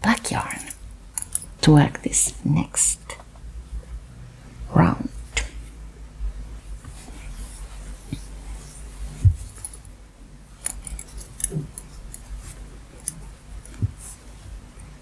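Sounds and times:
knitting needles clicking: 0.4 - 1.5.

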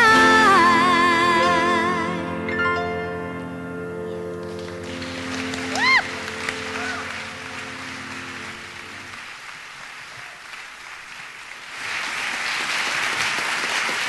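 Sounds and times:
held piano and voices chord: 0.0 - 9.2
audience applauding: 4.4 - 14.0.

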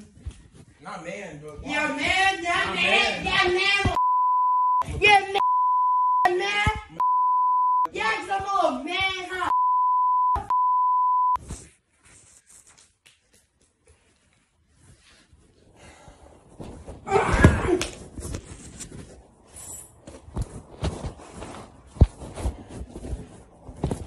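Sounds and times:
censor bleep tone: 4.0 - 6.3, 7.0 - 7.9, 9.5 - 11.4.

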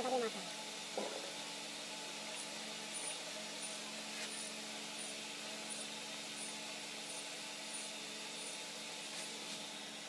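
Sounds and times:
electric hair clipper buzzing: 2.3 - 10.0.

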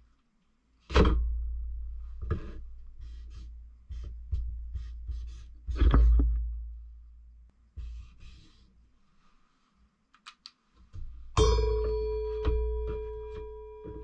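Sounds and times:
marker scratching on paper: 3.0 - 4.1, 4.7 - 5.7, 7.8 - 8.7.

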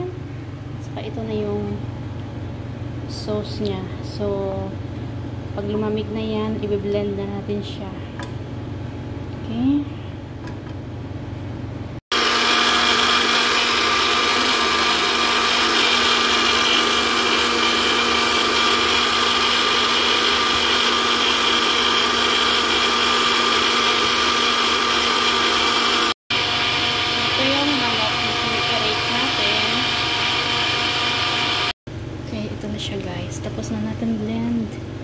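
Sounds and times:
electric blender motor running: 12.1 - 31.8.

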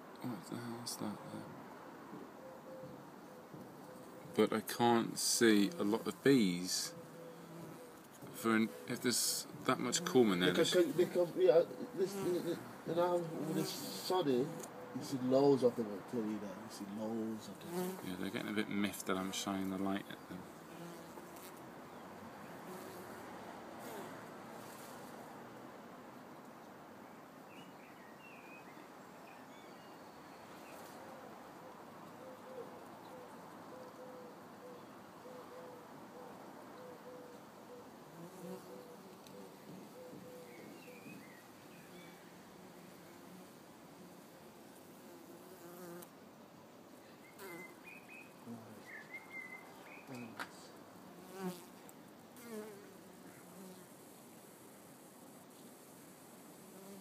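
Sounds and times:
pigeon cooing: 2.4 - 4.4, 6.9 - 8.0, 31.0 - 41.3
honeybees buzzing: 5.3 - 14.7
bird chirps: 38.8 - 42.2, 47.2 - 50.4.

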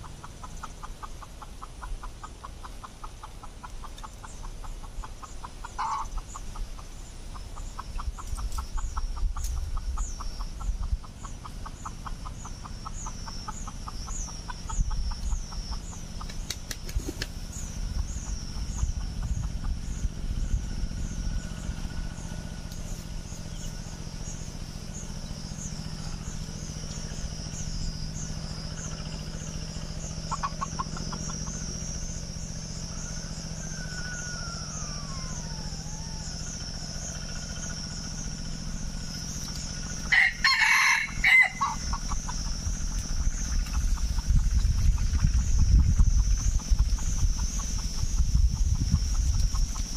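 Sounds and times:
insects pulsing: 0.0 - 49.9
rooster crowing: 32.8 - 37.2, 40.0 - 41.9.

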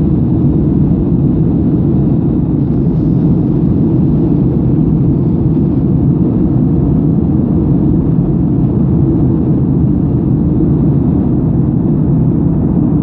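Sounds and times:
airliner cabin drone: 0.0 - 13.0.

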